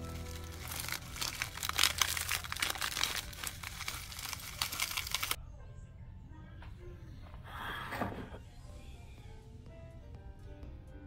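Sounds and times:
plastic wrapper crinkling: 0:00.0 - 0:05.4.

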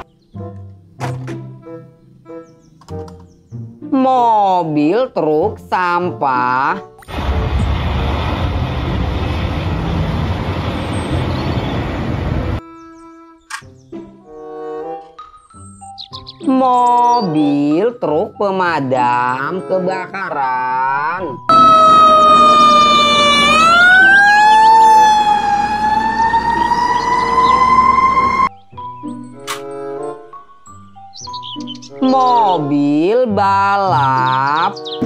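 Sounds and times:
children's background music: 0:00.0 - 0:07.1, 0:12.6 - 0:35.0
road traffic: 0:07.0 - 0:12.8, 0:21.4 - 0:28.5
garbage truck engine: 0:07.1 - 0:12.6, 0:21.5 - 0:28.5
held musical note: 0:21.5 - 0:28.5.

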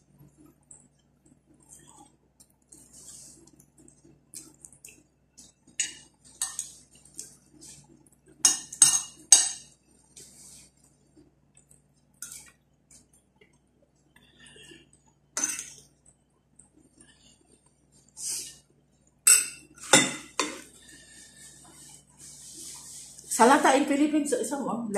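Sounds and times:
metal spoon clinking on plates: 0:05.8 - 0:06.8, 0:08.4 - 0:09.7, 0:15.4 - 0:15.8, 0:19.3 - 0:20.6.

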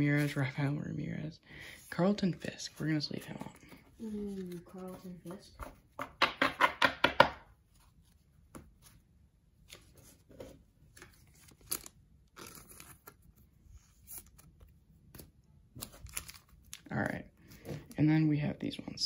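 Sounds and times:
cards clicking and rustling: 0:10.9 - 0:13.3.

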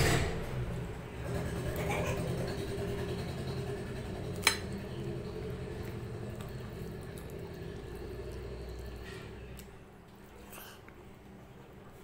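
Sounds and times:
fingers mixing food on a plate: 0:01.8 - 0:11.0.

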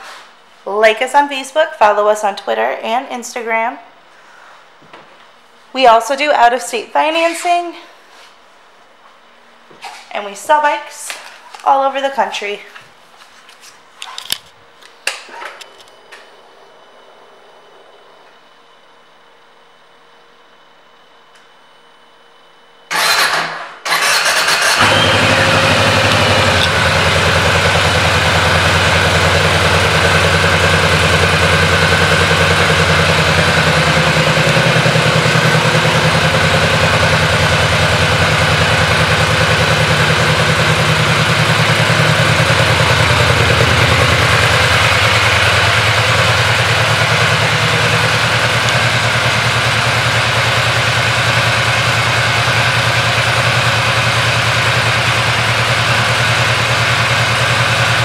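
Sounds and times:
motorcycle engine idling: 0:24.7 - 0:58.0.

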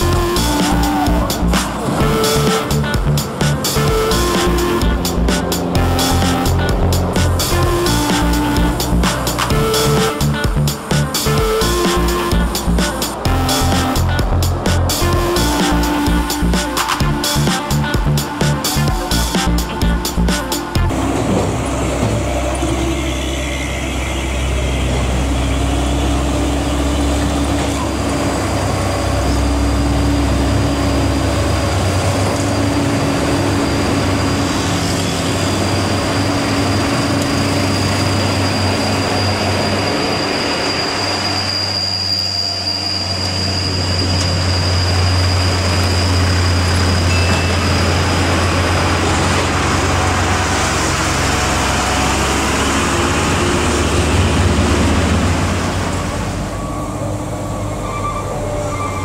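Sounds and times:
road traffic passing: 0:00.0 - 0:59.0
thin high whine: 0:22.5 - 0:26.7, 0:33.3 - 0:54.5.

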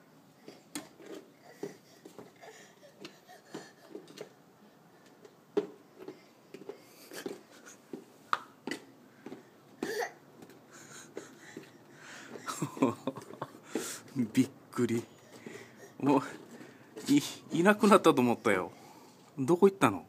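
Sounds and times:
footsteps in shoes on concrete: 0:05.0 - 0:18.7.

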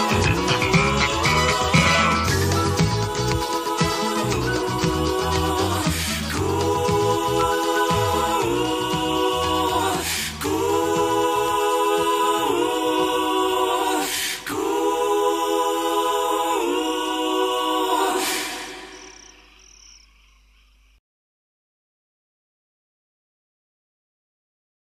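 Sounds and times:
choir singing a cappella: 0:00.0 - 0:19.5.

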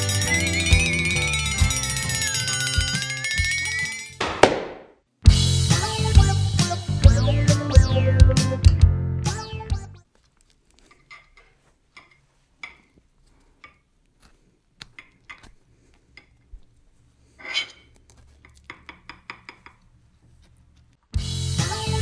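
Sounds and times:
knife scraping a plate: 0:17.2 - 0:20.6
knife tapping: 0:18.4 - 0:19.9.

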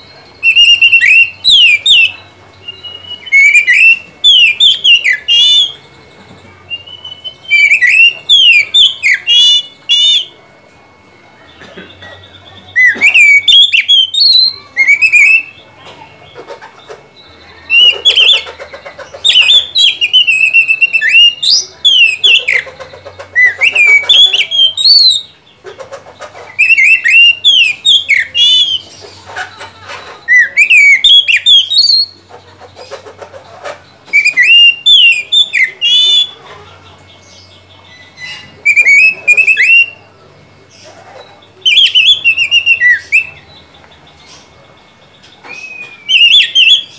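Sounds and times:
bird singing whistled phrases: 0:00.0 - 0:05.9, 0:06.7 - 0:10.4, 0:12.4 - 0:15.7, 0:19.2 - 0:25.4, 0:26.5 - 0:29.0, 0:30.2 - 0:32.2, 0:34.1 - 0:36.4, 0:37.4 - 0:40.2, 0:41.5 - 0:43.7, 0:45.4 - 0:46.9.

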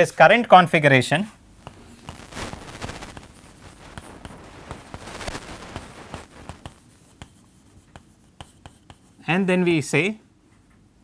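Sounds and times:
chalk writing on chalkboard: 0:05.6 - 0:09.4.

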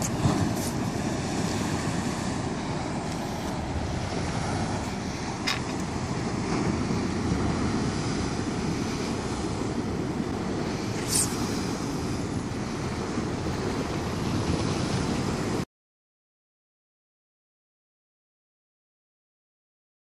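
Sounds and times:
wind buffeting microphone: 0:00.0 - 0:15.6.

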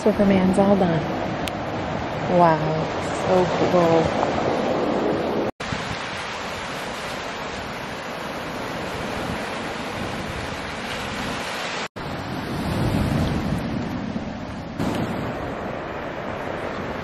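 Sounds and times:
waves washing over cobble beach: 0:00.2 - 0:17.0.

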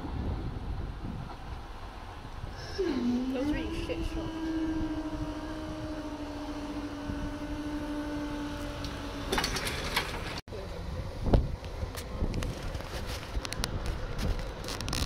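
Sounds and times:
barrier mechanism whining: 0:02.7 - 0:10.4
barrier rattle: 0:09.3 - 0:10.4.

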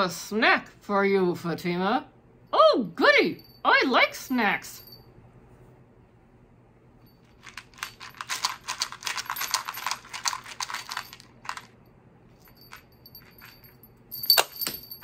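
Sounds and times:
jelly beans rattling in plastic cup: 0:07.4 - 0:11.8.

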